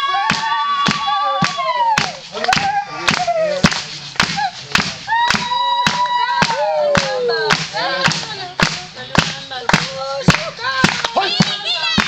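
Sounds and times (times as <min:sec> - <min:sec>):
drum beat: 0:00.0 - 0:12.0
hand claps: 0:00.2 - 0:12.0
voices singing: 0:05.4 - 0:12.0.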